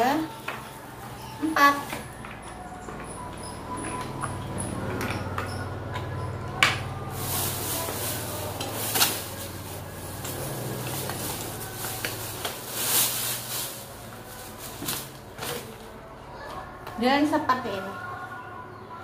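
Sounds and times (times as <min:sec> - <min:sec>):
plastic bag crinkling: 0:07.0 - 0:16.0.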